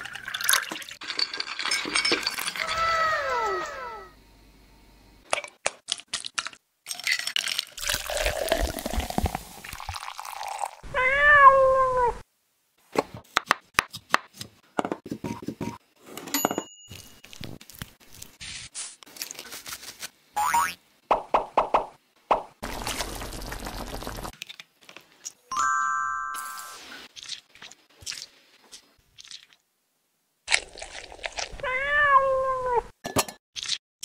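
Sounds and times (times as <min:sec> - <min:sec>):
cat meow: 0:10.9 - 0:12.2, 0:31.6 - 0:32.8.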